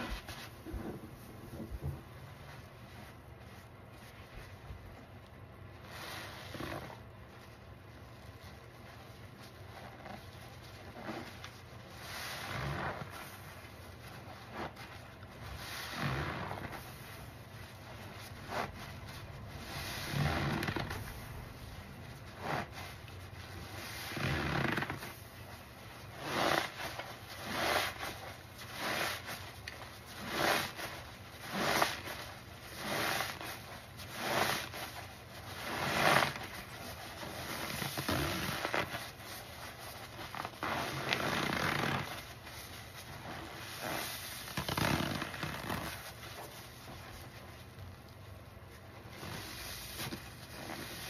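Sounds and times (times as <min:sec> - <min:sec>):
foamy sponge squelching: 0:00.0 - 0:51.0.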